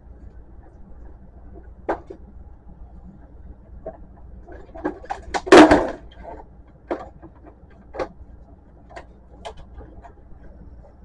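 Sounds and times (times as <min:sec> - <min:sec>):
plastic clatter: 0:01.5 - 0:02.2, 0:03.8 - 0:08.2.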